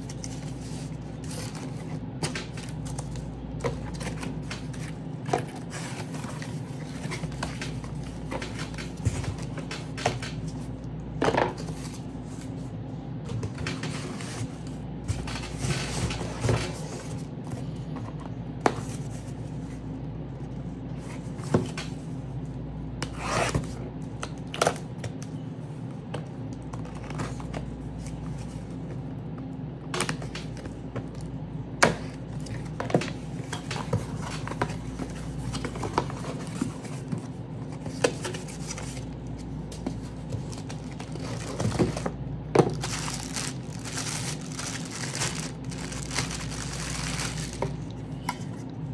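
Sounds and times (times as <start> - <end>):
steady low hum: 0.0 - 48.9
packaging rubbing and scraping: 40.0 - 47.9.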